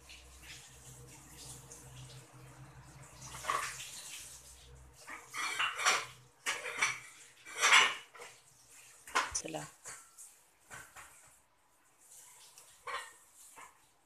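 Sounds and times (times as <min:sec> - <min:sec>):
water splashing in sink: 0:00.0 - 0:11.2.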